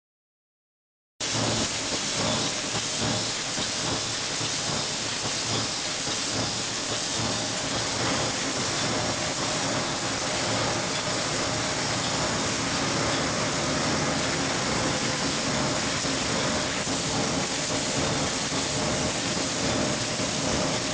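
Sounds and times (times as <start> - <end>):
machine hissing: 1.2 - 20.9
rapid mechanical rattle: 1.2 - 20.9.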